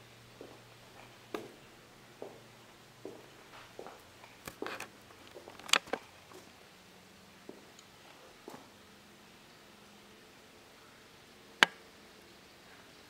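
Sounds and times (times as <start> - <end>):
faint steady hum: 0.0 - 13.0
footsteps on tile floor: 0.4 - 6.5.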